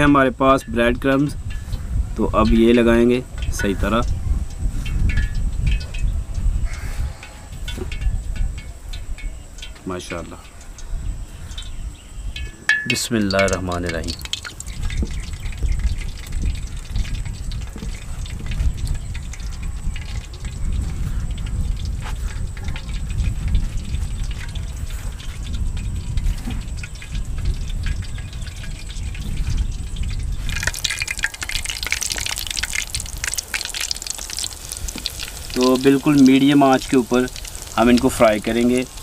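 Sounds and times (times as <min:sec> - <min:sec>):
hot oil sizzling: 0:00.0 - 0:39.0.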